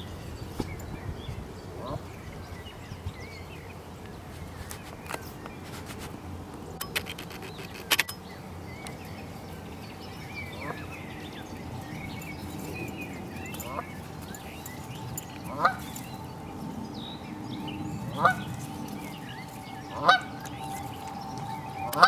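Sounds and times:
sharp clicks: 6.8 - 8.2
goslings peeping: 18.2 - 18.5, 19.9 - 20.6.

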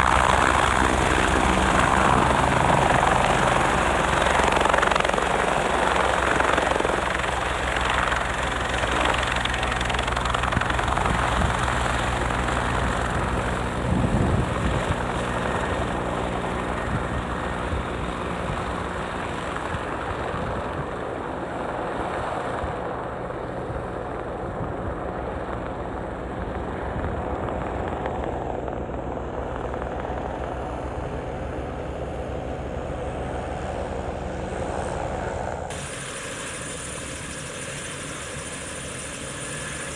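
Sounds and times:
helicopter rotor beat: 0.0 - 39.9
turbine whine: 0.0 - 39.9.

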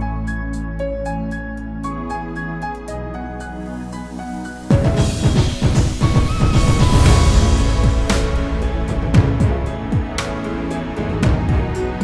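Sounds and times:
melodic background music: 0.0 - 12.0.

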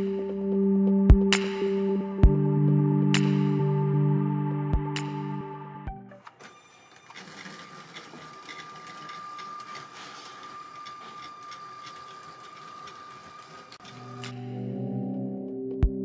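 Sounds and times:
toy train motor whining: 6.2 - 14.4
wheels clicking over track joints: 6.2 - 14.4.

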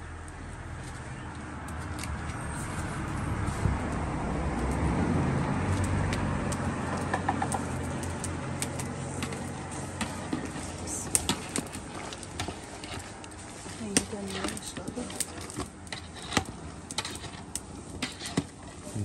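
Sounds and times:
vehicle engine hum: 0.0 - 12.6.

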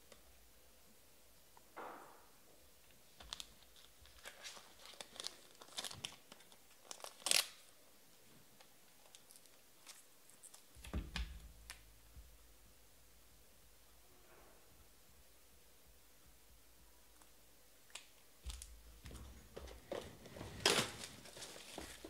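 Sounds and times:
packaging crinkling and clicking: 3.2 - 7.7.

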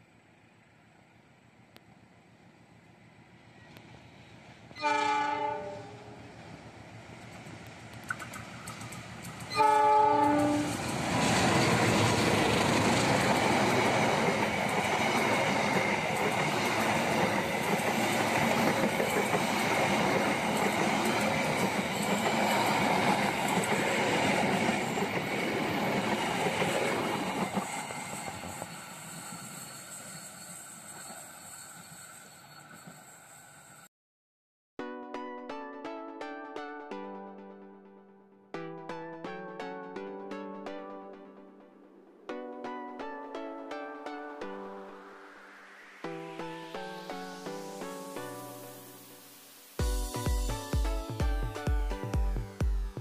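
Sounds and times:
train running on rails: 0.0 - 33.9, 46.2 - 53.0
train horn blast: 4.8 - 6.3, 9.5 - 10.9.

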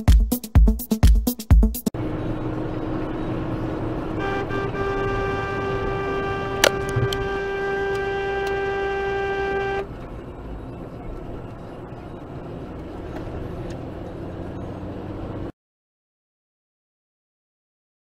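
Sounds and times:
car road noise at speed: 1.9 - 15.5
car horn: 3.2 - 10.2.

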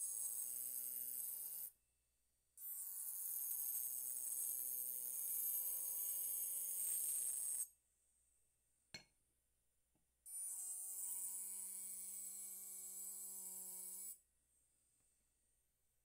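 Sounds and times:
engraving pen buzzing on glass: 0.0 - 1.8, 2.6 - 7.7, 10.3 - 14.2.

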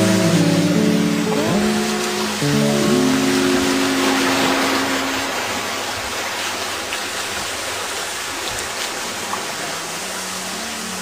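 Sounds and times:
low music notes: 0.0 - 6.4
small waves washing shore: 0.0 - 11.0
waterfall pouring: 0.0 - 11.0.

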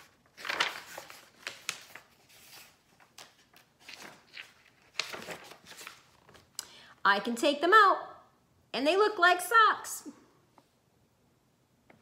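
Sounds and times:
paper pages rustling as turned: 0.0 - 6.6.

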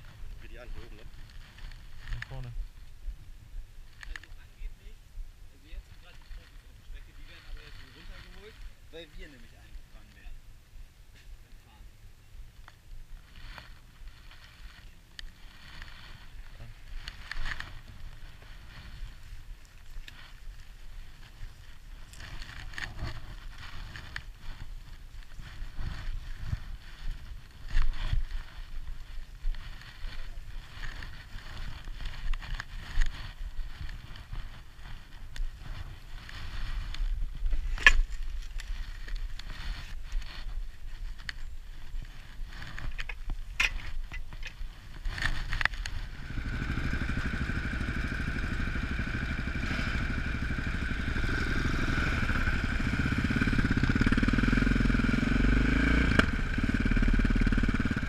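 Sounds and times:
rustling near helmet camera: 0.0 - 10.4, 11.0 - 55.0
motorcycle engines running: 11.6 - 37.1, 44.3 - 58.0.

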